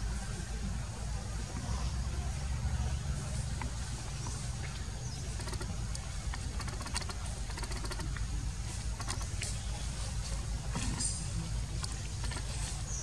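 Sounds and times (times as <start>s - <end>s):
faint clicks and crackles: 3.3s - 12.9s.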